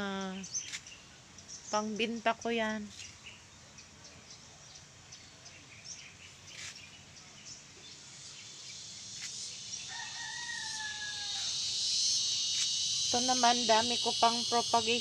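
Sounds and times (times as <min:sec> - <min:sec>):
rooster crowing: 0:09.9 - 0:11.8.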